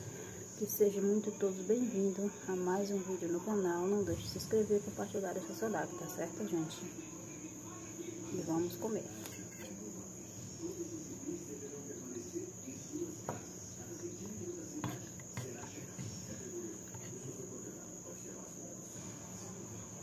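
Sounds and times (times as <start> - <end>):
cricket trill: 0.0 - 20.0.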